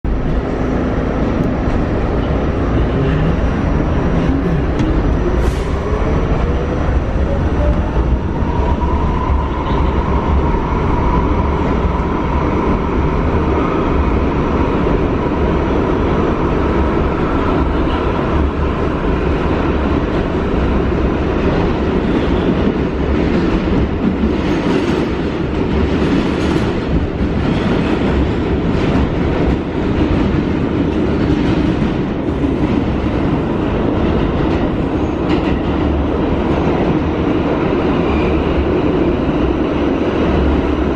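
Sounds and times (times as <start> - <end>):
train car running rumble: 0.0 - 40.9
subway motor whine: 0.1 - 40.9.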